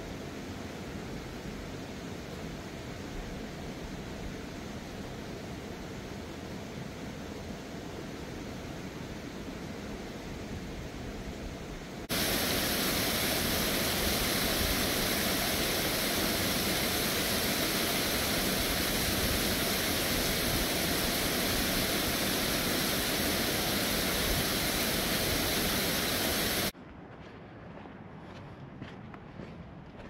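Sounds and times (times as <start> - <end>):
water rushing over rock ledges: 12.1 - 26.7.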